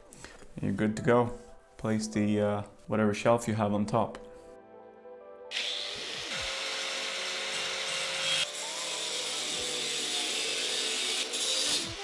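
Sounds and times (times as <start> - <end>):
angle grinder cutting metal: 5.5 - 12.0.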